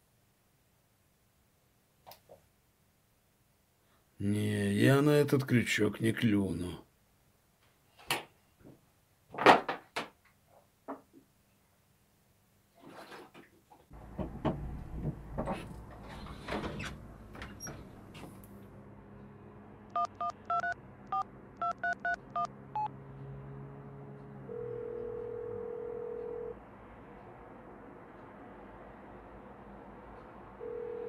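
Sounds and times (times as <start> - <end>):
knocks and clatter: 14.0 - 18.4
phone ringing tone: 19.9 - 22.9, 24.5 - 26.6, 30.6 - 31.0
phone keypad two-tone beeps: 20.0 - 22.9.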